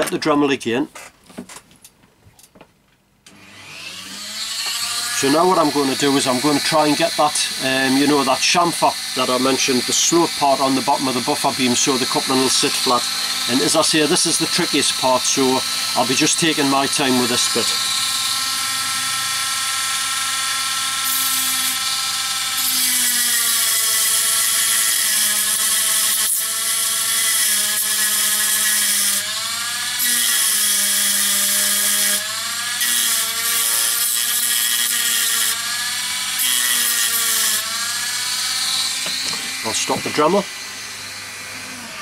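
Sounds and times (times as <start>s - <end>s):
rotary tool grinding plastic: 3.6s - 29.3s, 29.9s - 40.4s.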